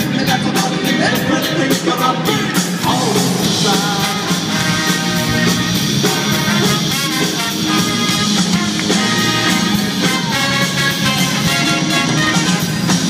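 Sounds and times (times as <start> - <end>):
drum kit: 0.0 - 13.0
electric bass: 0.0 - 13.0
trumpets and trombone: 3.6 - 13.0.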